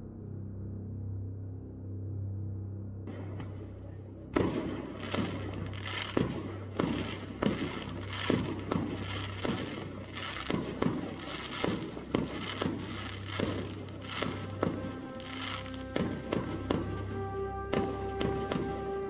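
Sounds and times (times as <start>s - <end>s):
fireworks bursting: 4.4s - 19.0s.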